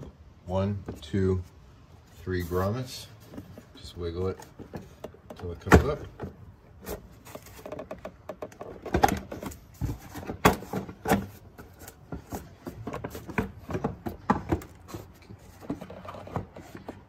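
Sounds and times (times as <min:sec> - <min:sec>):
plastic clicks and knocks: 0:07.3 - 0:11.3.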